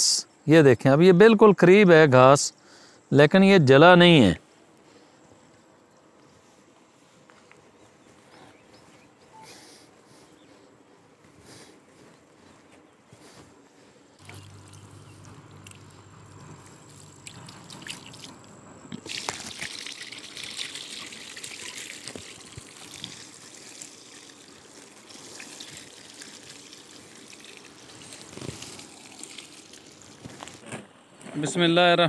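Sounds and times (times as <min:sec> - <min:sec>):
water pouring onto grass: 0:14.2 - 0:30.7.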